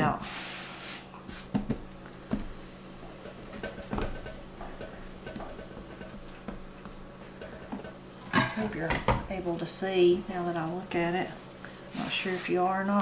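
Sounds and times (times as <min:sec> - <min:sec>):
hands patting dough: 0:01.3 - 0:08.2.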